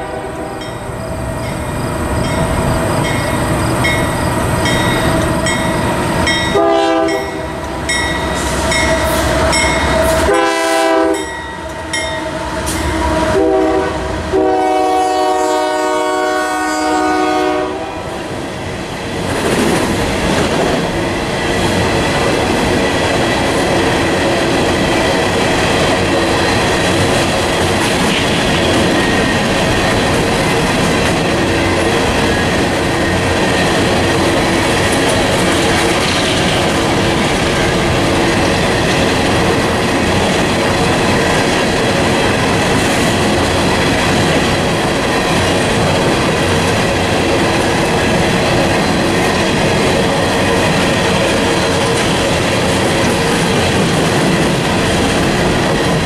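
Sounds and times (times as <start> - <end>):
locomotive horn blasts: 0.0 - 0.7, 6.5 - 7.5, 8.4 - 18.1
train wheels clacking over rail joints: 19.2 - 56.0.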